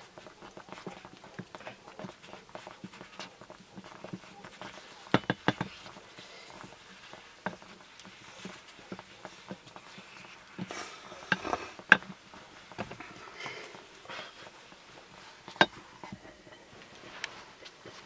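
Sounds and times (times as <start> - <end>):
wooden spoon stirring in clay pot: 0.0 - 18.0
spoon knocking on pot rim: 2.9 - 6.0.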